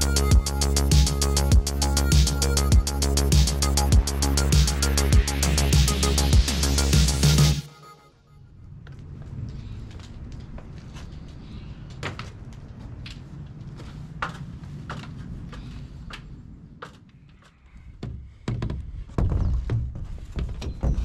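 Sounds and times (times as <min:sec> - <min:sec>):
low rumble: 0:08.4 - 0:19.1
thumps on plastic roof: 0:18.0 - 0:21.0.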